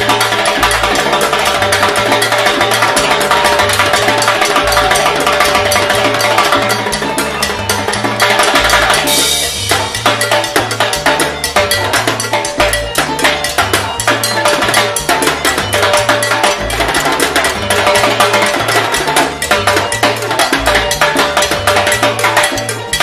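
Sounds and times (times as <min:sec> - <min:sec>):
bass line: 0:00.0 - 0:21.9
cowbell: 0:00.0 - 0:23.0.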